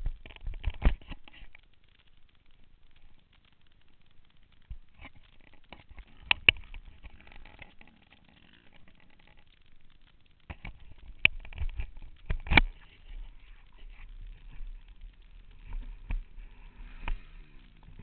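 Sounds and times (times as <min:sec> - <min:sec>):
dirt bike knocks and rattles: 0:10.4 - 0:18.0.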